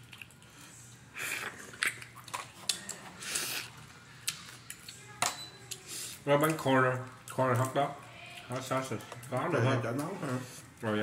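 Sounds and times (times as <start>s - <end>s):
chewing: 0.0s - 5.1s.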